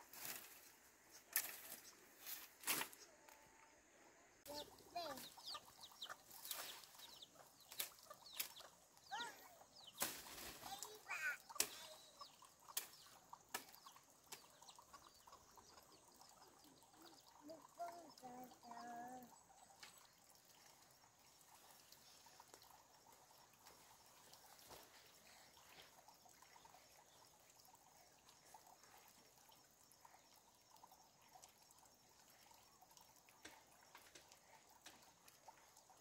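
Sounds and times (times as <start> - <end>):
short chirping bird calls: 4.5 - 17.4.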